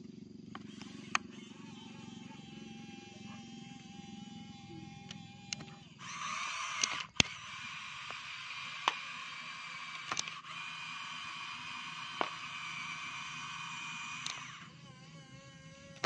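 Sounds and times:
small electric motors whining: 0.0 - 16.0
sharp clicks: 0.5 - 1.4, 5.0 - 9.2, 9.8 - 10.6, 11.5 - 14.6.

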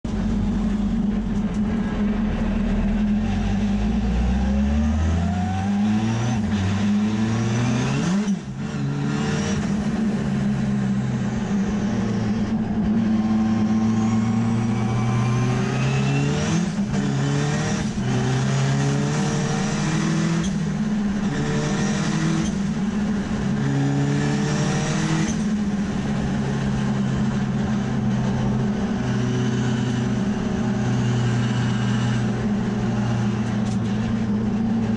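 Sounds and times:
race car engine accelerating: 0.1 - 34.9.

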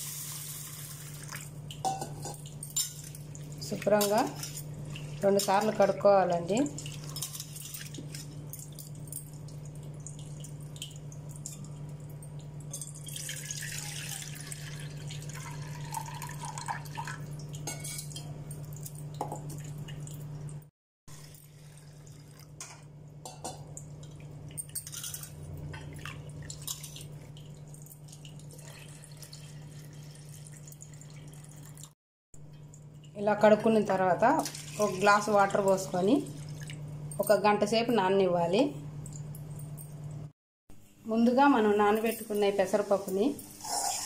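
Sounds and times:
water sloshing and dripping: 0.9 - 22.8, 23.7 - 33.2, 34.2 - 37.2
water poured into bowl: 12.9 - 17.6, 25.9 - 31.9.

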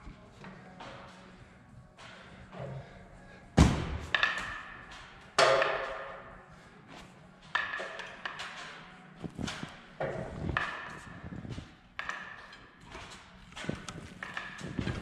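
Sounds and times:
heavy thud: 3.6 - 4.3.

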